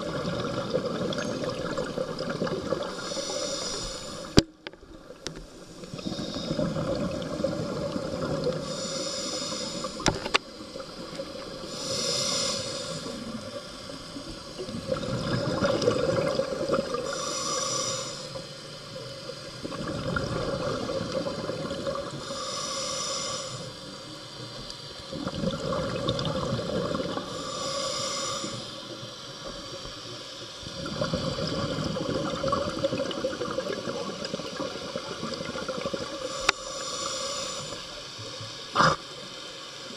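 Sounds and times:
bubbling exhale: 0:00.0 - 0:04.5, 0:05.6 - 0:18.5, 0:19.5 - 0:23.8, 0:25.1 - 0:28.8, 0:30.7 - 0:38.0, 0:38.8 - 0:39.1
regulator hissing inhale: 0:02.8 - 0:14.7, 0:16.9 - 0:19.6, 0:20.8 - 0:24.8, 0:27.0 - 0:30.5, 0:36.0 - 0:39.1.

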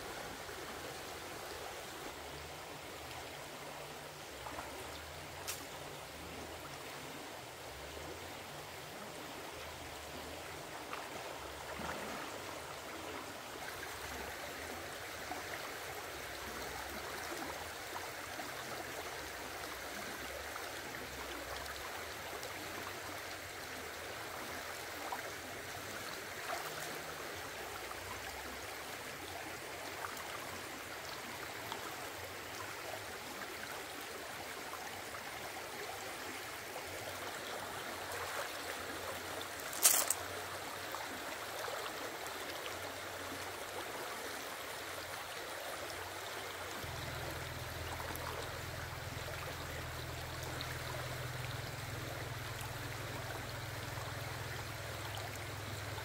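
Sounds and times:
rocky stream running: 0:00.0 - 0:56.0
small splashes: 0:39.4 - 0:40.4.

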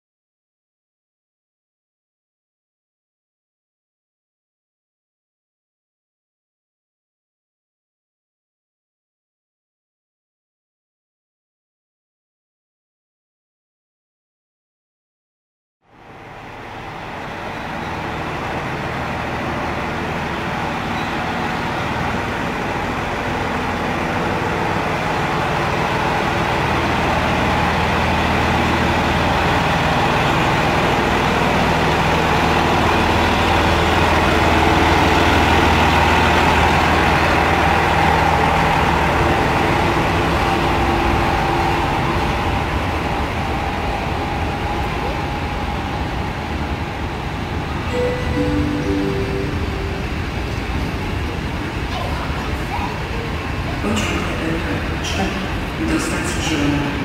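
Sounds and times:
diesel locomotive engine running: 0:15.8 - 0:57.0.

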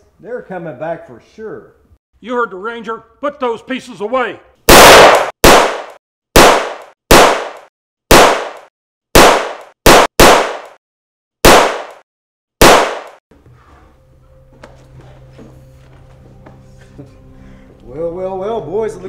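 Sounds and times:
gunshots: 0:04.7 - 0:10.8, 0:11.4 - 0:12.0, 0:12.6 - 0:13.2.

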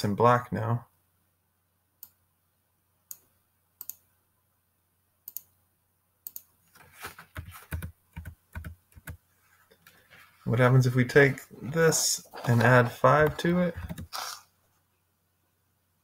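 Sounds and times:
computer mouse clicks: 0:03.1 - 0:04.0, 0:05.3 - 0:05.5, 0:06.2 - 0:06.5.

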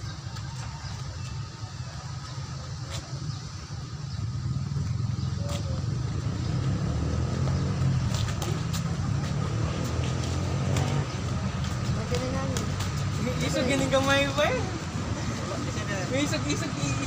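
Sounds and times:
low rumble of road traffic: 0:00.0 - 0:17.0
sharp slaps: 0:08.0 - 0:09.0.

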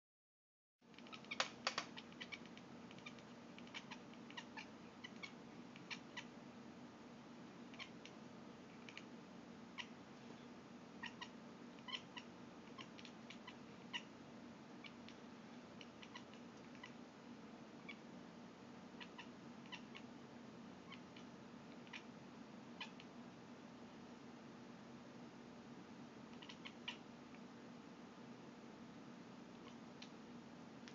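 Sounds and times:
faint steady hum: 0:00.8 - 0:30.9
cat chirping clicks: 0:00.9 - 0:06.3, 0:07.7 - 0:08.2, 0:26.4 - 0:27.0.

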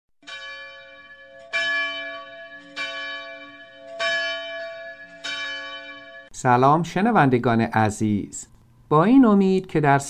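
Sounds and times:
bell tolling: 0:00.2 - 0:06.4.

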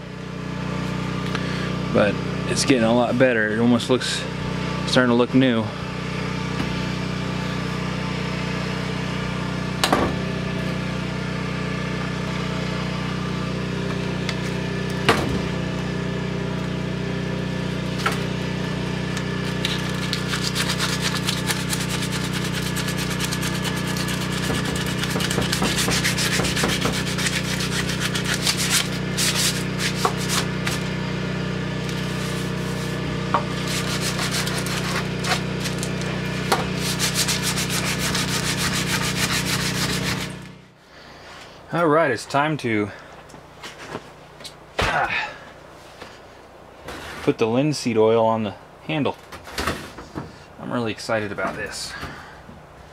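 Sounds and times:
steady low hum: 0:00.0 - 0:52.9
sandpaper rubbing on wood: 0:19.6 - 0:30.9, 0:31.9 - 0:35.9, 0:36.8 - 0:40.4.

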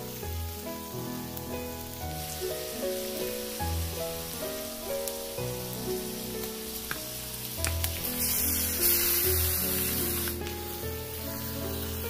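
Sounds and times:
chicken sizzling in a wok: 0:00.0 - 0:12.0.

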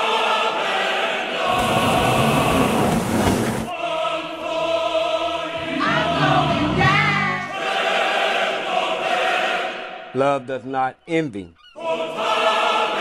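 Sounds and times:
choir holding sustained chords: 0:00.0 - 0:09.9
brief rush of noise: 0:01.5 - 0:03.7
singing voice gliding: 0:03.7 - 0:07.7.

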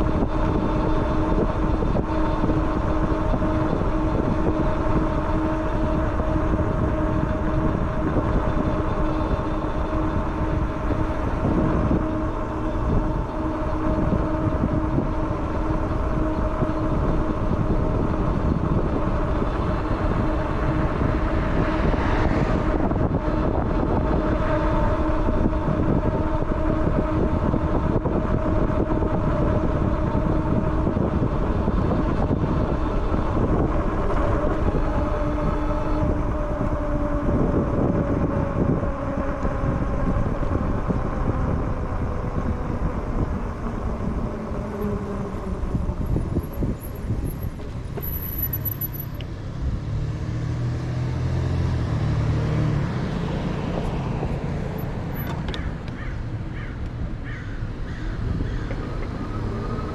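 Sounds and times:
electric motor whine: 0:00.0 - 0:55.7.

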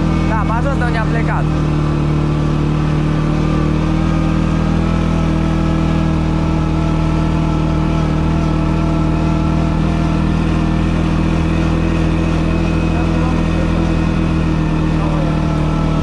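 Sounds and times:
atv engine running: 0:00.0 - 0:16.0.

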